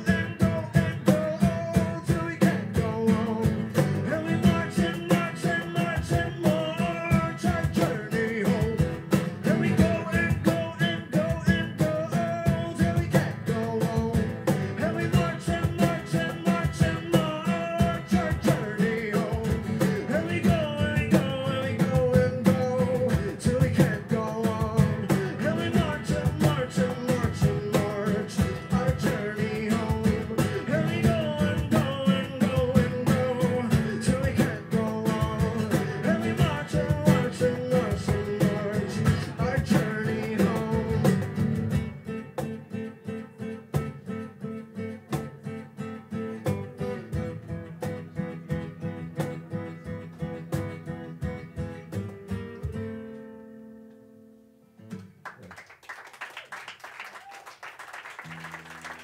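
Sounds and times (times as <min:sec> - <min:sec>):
man singing: 0:00.0 - 0:42.2
strummed acoustic guitar: 0:00.0 - 0:55.3.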